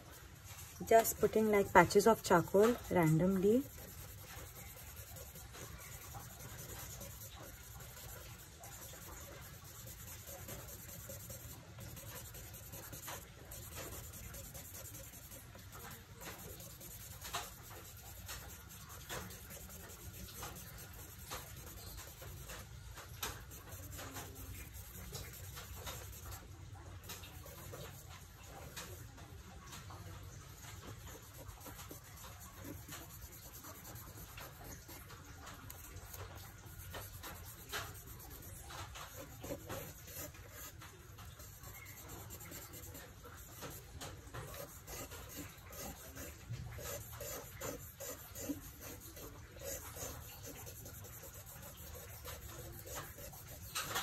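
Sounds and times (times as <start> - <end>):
charcoal scratching on paper: 0.0 - 54.0.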